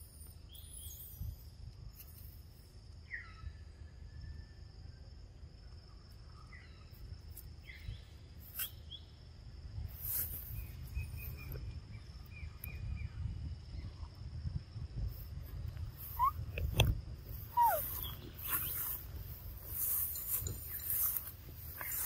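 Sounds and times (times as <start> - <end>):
bird chirps: 0.0 - 1.6, 3.0 - 3.6, 7.6 - 9.2, 10.5 - 14.1, 15.9 - 22.0
high-pitched insect drone: 17.2 - 22.0.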